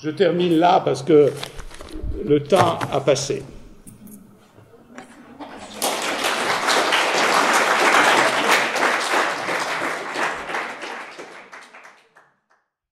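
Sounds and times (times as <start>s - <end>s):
audience applauding: 5.4s - 12.4s.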